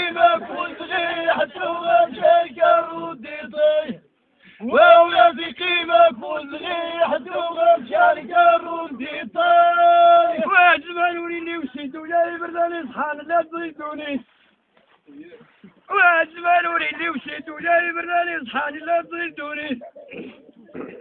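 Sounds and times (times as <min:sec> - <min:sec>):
man singing in chanting style: 0:00.0 - 0:04.0, 0:04.6 - 0:14.3, 0:15.9 - 0:19.8.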